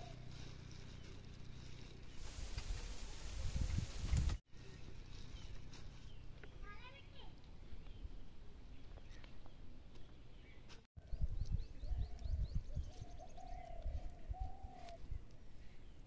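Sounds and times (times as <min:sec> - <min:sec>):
birds chirping: 0:04.1 - 0:16.0.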